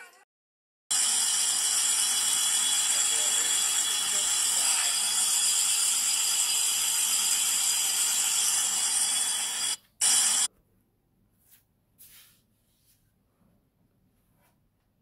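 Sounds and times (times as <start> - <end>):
metal lathe cutting hiss: 0.9 - 10.5.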